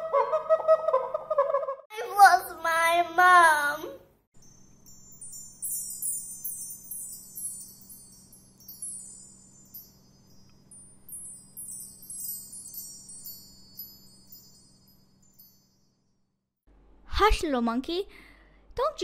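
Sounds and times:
wind chimes tinkling: 4.4s - 16.3s.

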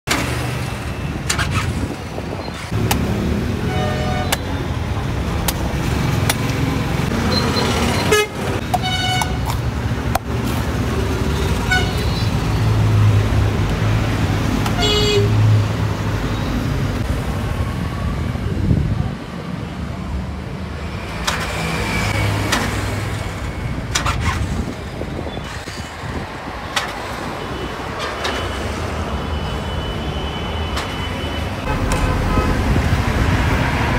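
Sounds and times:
vehicle engines running: 0.1s - 29.7s
vehicle horns tooting: 3.6s - 4.6s, 7.3s - 9.5s, 11.6s - 12.3s, 14.6s - 15.4s, 29.3s - 32.8s.

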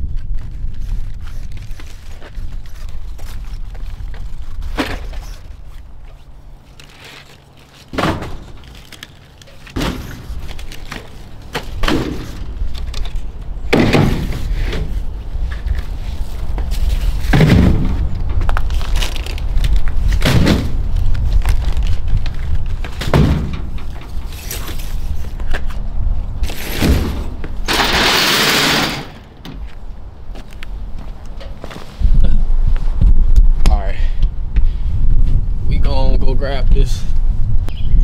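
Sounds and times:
drink cases thudding down: 7.9s - 8.8s
steady low rumble: 29.2s - 38.0s.

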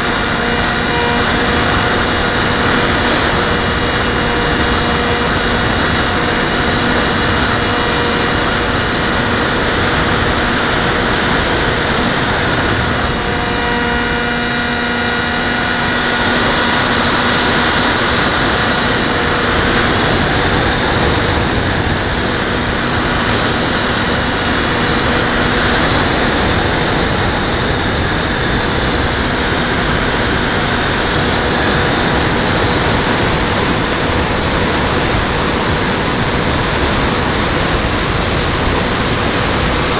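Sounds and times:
high whine: 0.0s - 39.9s
model airplane motor and propeller: 0.0s - 39.9s
wind rushing: 15.3s - 39.9s.

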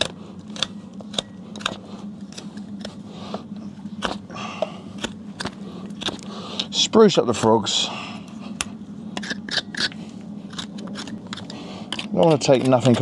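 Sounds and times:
hoof knife cutting strokes: 0.0s - 6.8s, 8.3s - 13.0s.

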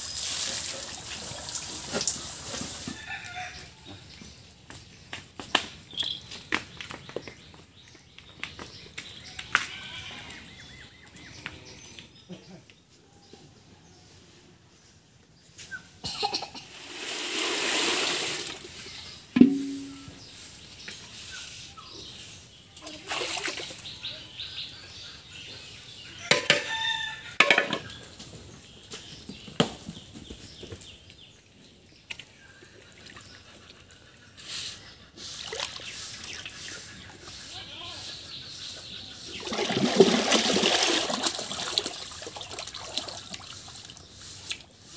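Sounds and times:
water pouring and sloshing: 0.0s - 3.1s, 16.8s - 20.1s, 22.8s - 24.0s, 35.2s - 36.6s, 39.3s - 44.7s
sharp knock with short ring: 19.4s - 20.2s.

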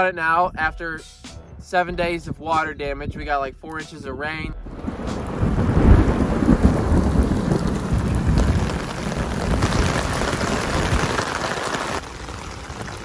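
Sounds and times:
low rumble of thunder: 4.5s - 13.0s
heavy rain pouring: 4.7s - 13.0s.

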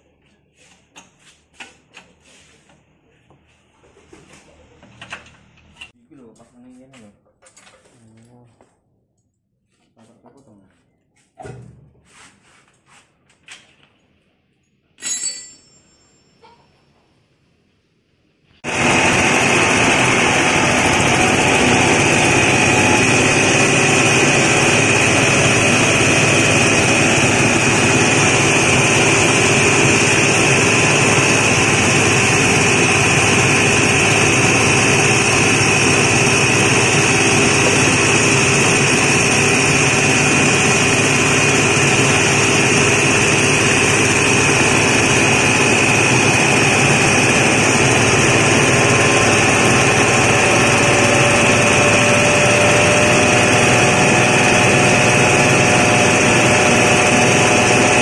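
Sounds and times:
grinding mill droning with whine: 18.7s - 58.0s.

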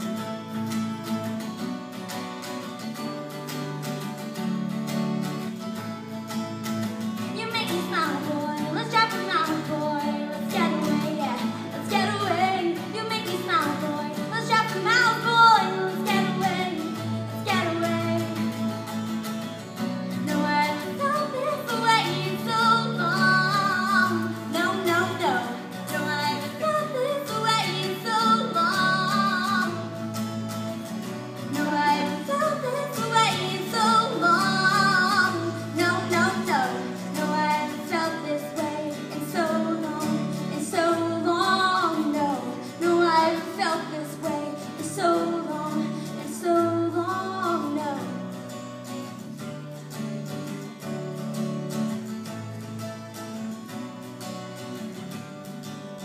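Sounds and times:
woman singing: 7.2s - 19.2s, 20.0s - 30.3s, 31.0s - 48.6s.

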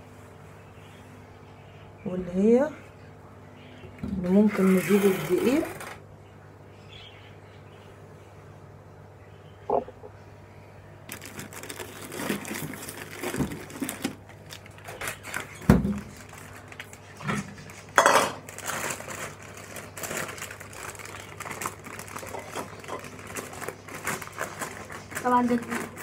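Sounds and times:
plastic bag rustling: 11.1s - 26.0s
metal bowl clattering on stone: 18.0s - 18.4s.

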